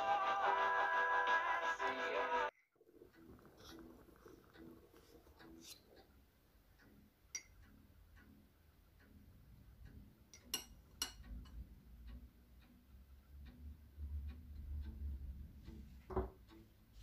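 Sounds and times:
spoon clinking on ceramic cup: 10.3 - 11.6.

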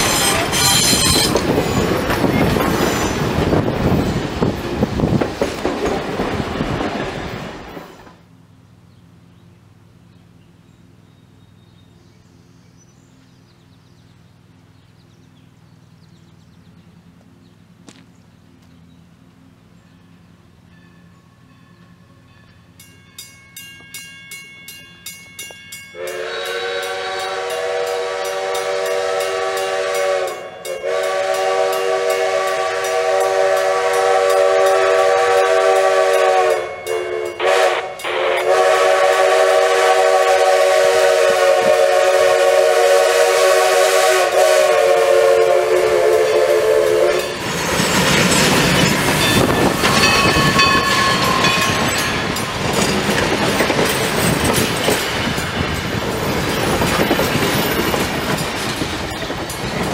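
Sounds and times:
steam locomotive whistle blasts: 0.0 - 1.8, 26.0 - 47.5
crossing signal bell ringing: 0.0 - 4.1, 20.0 - 38.6, 46.9 - 59.9
train rumbling and clattering: 0.0 - 12.0, 13.2 - 59.9.

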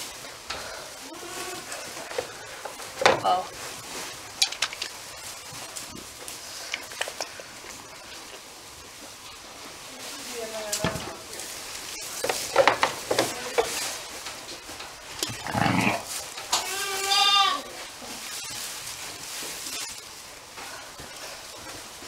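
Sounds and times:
clicks and rustles in straw: 0.0 - 22.0
sheep bleating: 15.4 - 17.7.

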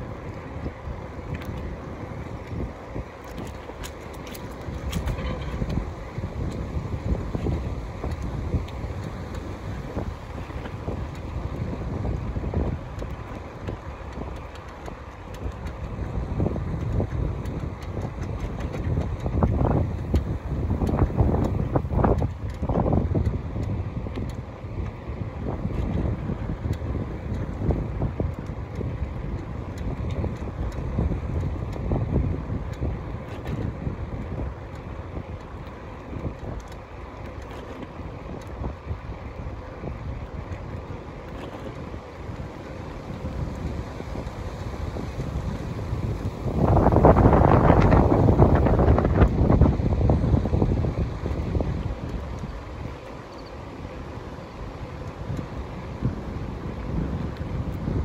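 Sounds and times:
tyres rolling on asphalt: 0.0 - 58.0
wind buffeting microphone: 0.0 - 58.0
faint ticks: 32.6 - 38.6, 52.0 - 53.7.

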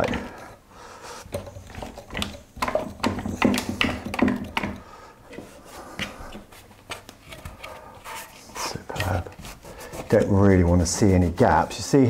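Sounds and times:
wooden knocks and clicks: 0.0 - 0.4, 1.3 - 6.2.

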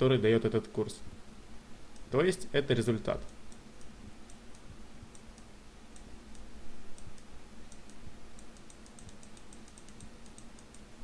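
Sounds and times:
low steady hum: 0.0 - 11.0
computer mouse clicks: 3.2 - 10.9.

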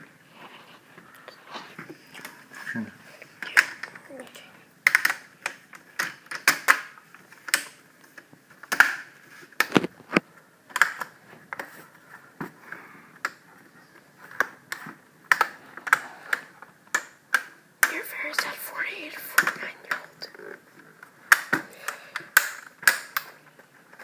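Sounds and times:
plastic clips snapping into place: 4.8 - 11.7, 21.3 - 23.3.

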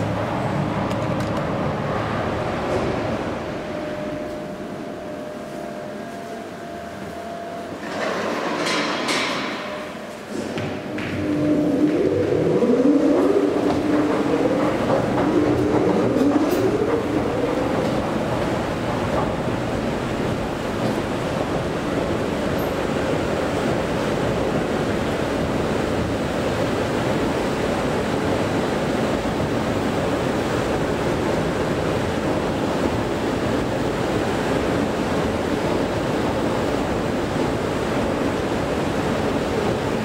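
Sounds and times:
escalator running: 10.8 - 26.6.

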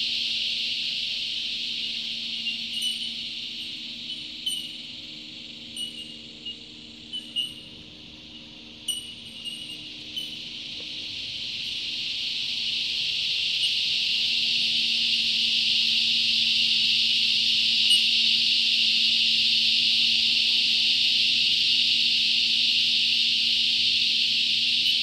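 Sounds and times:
cicada chorus buzzing: 0.0 - 25.0
bird notes: 2.3 - 4.9, 5.7 - 7.8, 8.8 - 10.6.

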